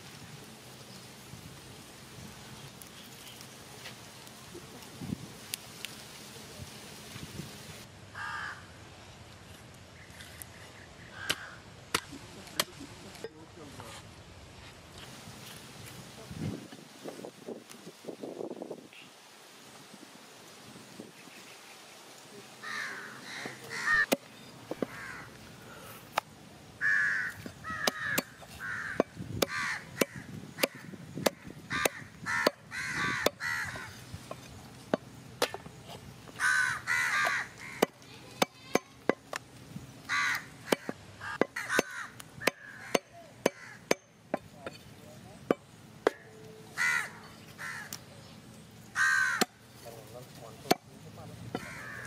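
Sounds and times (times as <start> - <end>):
crows cawing: 8.1 - 8.8, 11.1 - 11.6, 22.6 - 26.0, 26.8 - 34.0, 36.3 - 38.0, 40.0 - 44.0, 46.1 - 48.0, 48.9 - 49.7, 51.5 - 52.0
cleaver chopping into wood block: 34.9 - 35.7, 40.6 - 44.8, 50.6 - 50.9.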